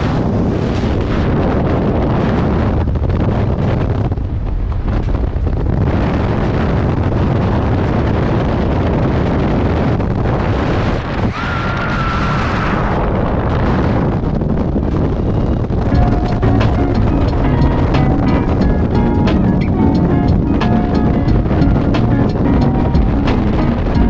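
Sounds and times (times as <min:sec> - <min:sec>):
wind rushing over microphone: 0:00.0 - 0:24.0.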